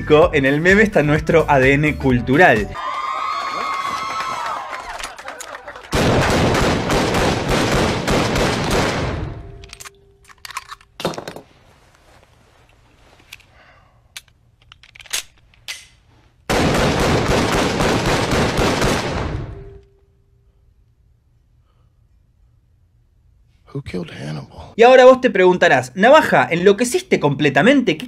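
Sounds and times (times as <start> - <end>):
rapid handgun gunfire: 5.9 - 9.2, 16.5 - 19.5.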